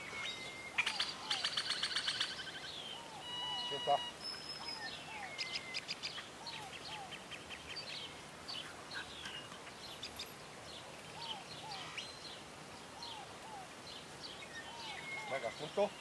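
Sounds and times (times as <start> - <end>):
birds chirping and twittering: 0.0 - 16.0
two-note bird call: 3.2 - 4.2.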